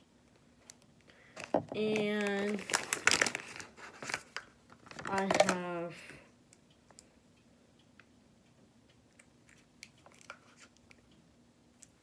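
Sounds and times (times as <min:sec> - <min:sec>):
small jars clicking and tapping: 0:05.0 - 0:05.6.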